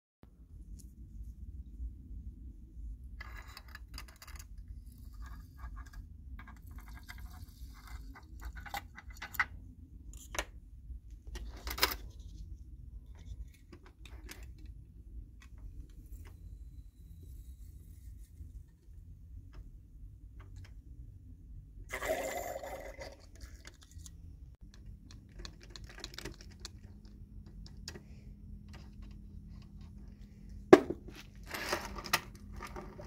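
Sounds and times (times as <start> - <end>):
low steady hum: 0.2 - 33.0
small parts clicking and clinking: 3.2 - 10.4, 23.7 - 30.1.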